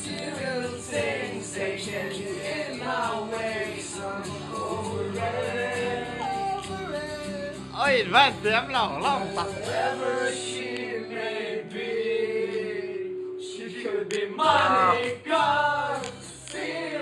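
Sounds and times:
young men singing along: 0.0s - 7.6s, 9.0s - 17.0s
man singing: 0.0s - 10.5s, 13.4s - 16.0s.

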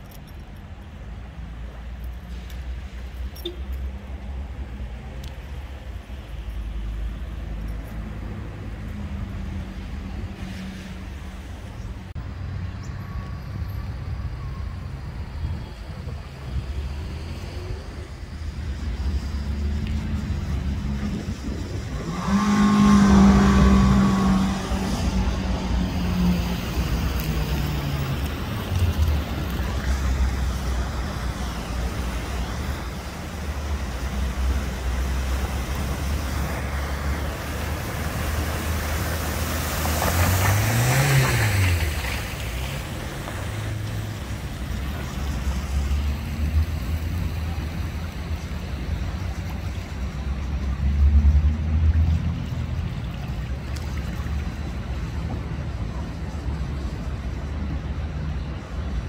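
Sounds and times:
tyres splashing through water: 14.0s - 57.7s
car engines running low: 14.2s - 59.0s.

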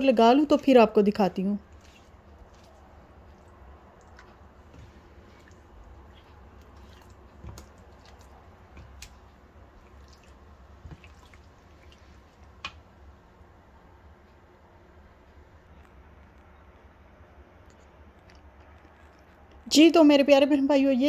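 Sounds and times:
brush squishing marinade on meat: 1.6s - 12.8s.

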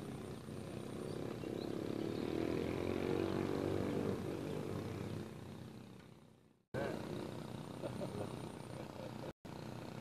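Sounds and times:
motor engine humming: 4.1s - 10.0s.

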